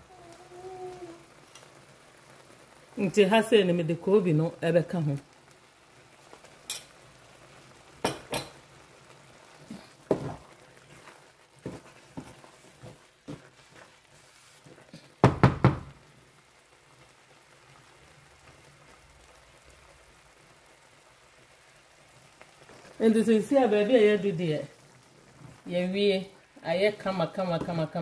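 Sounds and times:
wooden spatula knocking against pan: 15.2 - 15.9.

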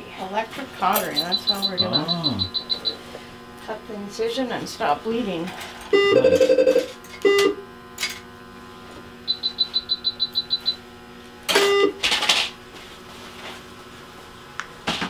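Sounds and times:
electrosurgical unit activation tones: 0.8 - 3.1, 5.9 - 7.7, 9.2 - 10.9, 11.5 - 12.0
high beeps: 1.2 - 3.0, 6.0 - 7.5, 9.3 - 10.8.

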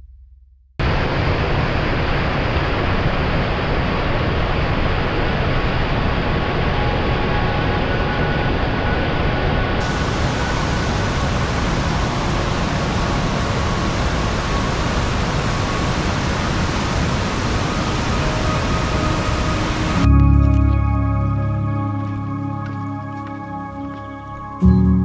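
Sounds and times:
music with deep bass note: 0.0 - 0.8, 19.0 - 25.0
river water rushing over weir: 0.8 - 20.1.

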